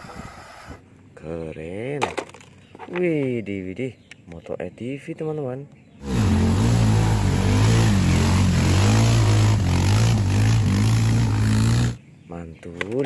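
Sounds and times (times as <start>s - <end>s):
quad bike engine revving: 6.0s - 12.0s.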